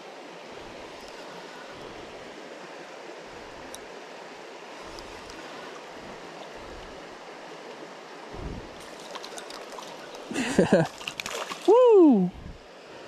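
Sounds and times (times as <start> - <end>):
creek water running: 0.0 - 13.0
fish splashing at surface: 10.9 - 11.7.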